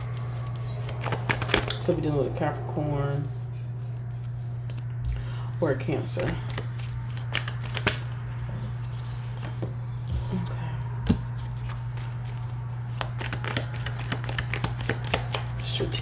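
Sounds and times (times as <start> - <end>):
cards being shuffled: 0.0 - 1.9, 6.2 - 10.3, 11.1 - 15.6
steady low hum: 0.0 - 16.0.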